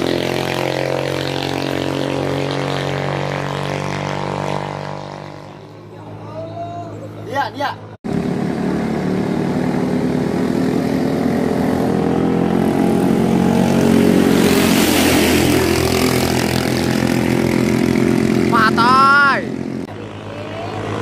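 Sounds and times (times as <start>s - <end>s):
longtail boat engines racing: 0.0s - 21.0s
rushing spray: 13.4s - 17.9s.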